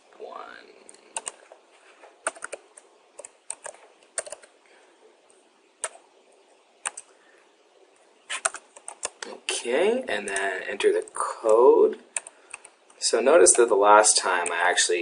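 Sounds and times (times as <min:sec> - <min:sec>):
computer keyboard typing: 0:00.9 - 0:01.5, 0:02.2 - 0:04.6, 0:05.8 - 0:06.0, 0:06.8 - 0:07.1, 0:08.3 - 0:09.3, 0:10.2 - 0:10.5, 0:11.4 - 0:13.0.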